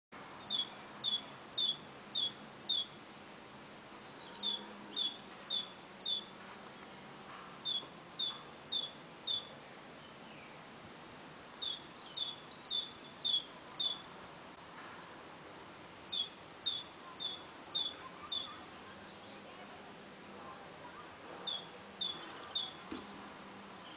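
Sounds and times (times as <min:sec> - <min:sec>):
songbird singing two-note phrase: 0:00.2 - 0:02.9, 0:04.1 - 0:06.3, 0:07.4 - 0:10.4, 0:11.3 - 0:14.0, 0:15.8 - 0:19.4, 0:21.2 - 0:23.1.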